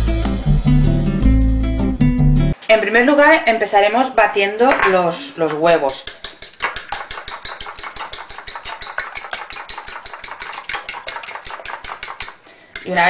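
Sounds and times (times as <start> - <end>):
whisk clicking against ceramic bowl: 4.8 - 13.0.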